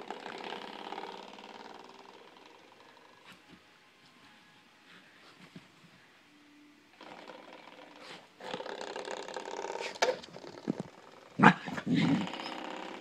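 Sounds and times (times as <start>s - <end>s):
fast rattling buzz: 0.0s - 3.2s, 7.0s - 13.0s
puppy growling and yapping: 7.0s - 13.0s.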